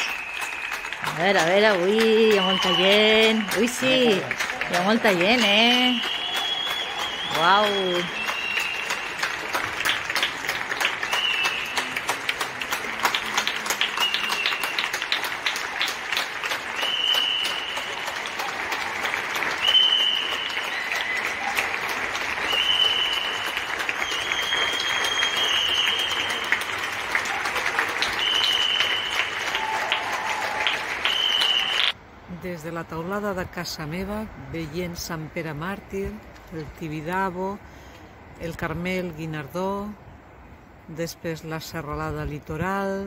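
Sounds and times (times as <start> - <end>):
crowd applauding: 0.0 - 32.0.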